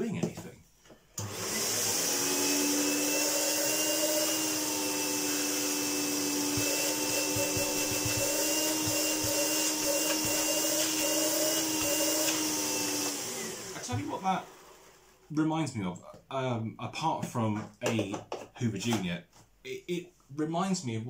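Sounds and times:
vacuum cleaner running: 1.2s - 15.1s.

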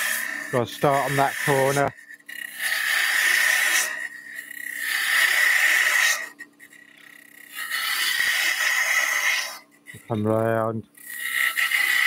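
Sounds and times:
lathe humming: 0.0s - 8.8s
tool scraping wood on lathe: 0.0s - 12.0s.

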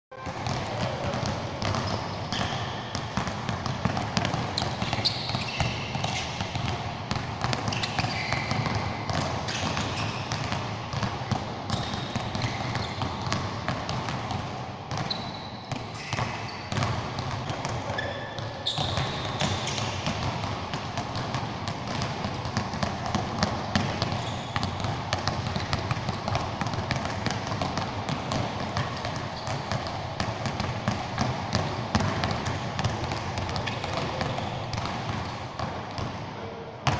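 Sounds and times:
basketballs bouncing: 0.2s - 36.9s
shoe squeaks: 1.7s - 2.8s, 4.6s - 6.4s, 7.7s - 8.6s, 11.7s - 13.1s, 15.0s - 16.7s, 17.8s - 20.0s, 24.1s - 24.7s.

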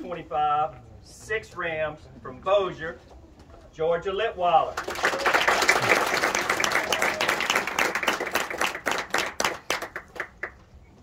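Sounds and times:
small group applauding: 4.7s - 10.6s.

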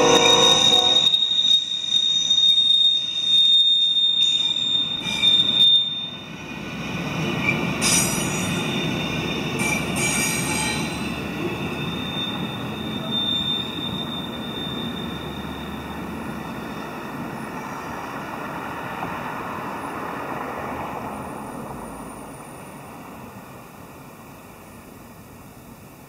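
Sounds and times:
low rolling rumble of train cars: 0.0s - 26.0s
train wheels squealing on rail: 0.0s - 26.0s.

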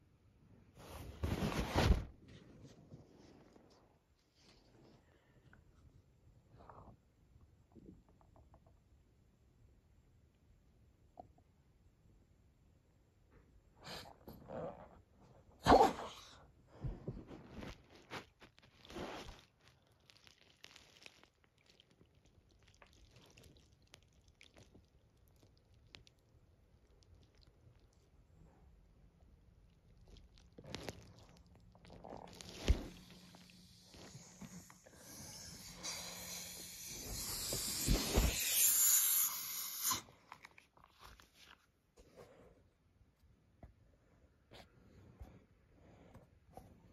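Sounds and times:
small clicks and squishes: 17.5s - 28.4s, 29.2s - 34.9s, 40.2s - 41.8s
chewing on a toy: 17.8s - 36.2s
air hissing out of balloon: 33.0s - 40.0s.

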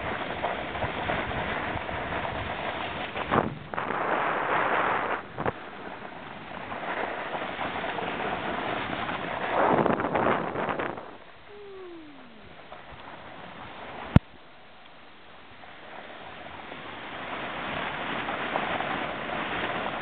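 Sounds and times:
snowboard scraping on snow: 0.0s - 11.1s, 15.7s - 20.0s
wind on microphone: 0.0s - 14.2s.

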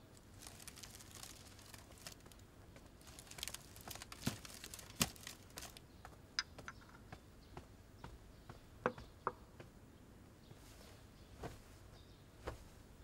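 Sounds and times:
light crinkling and rustling: 0.0s - 5.8s.

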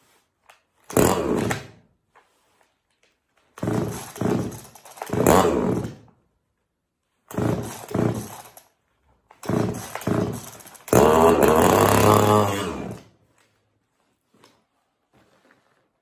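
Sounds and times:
chainsaw engine running unevenly: 0.9s - 1.7s, 3.6s - 6.1s, 7.3s - 8.7s, 9.3s - 13.2s
recoil starter pulls: 0.9s - 1.8s, 3.6s - 6.2s, 7.3s - 13.1s.

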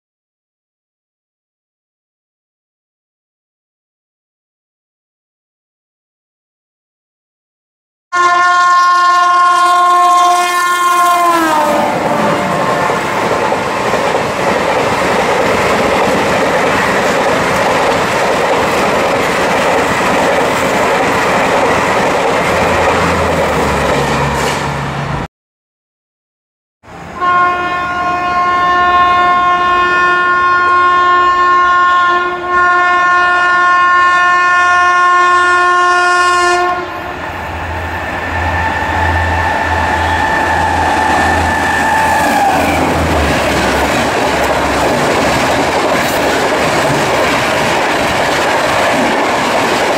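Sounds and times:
locomotive horn: 8.1s - 13.3s, 27.0s - 37.2s, 38.4s - 44.0s.

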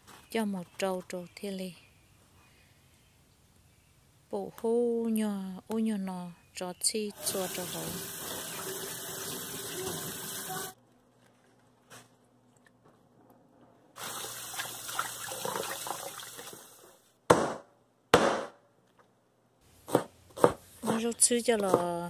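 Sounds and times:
kitchen tap running: 7.1s - 10.8s, 14.0s - 16.8s.

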